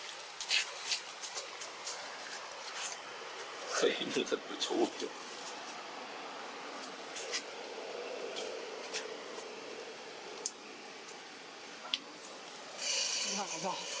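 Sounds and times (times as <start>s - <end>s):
background hiss: 0.0s - 14.0s.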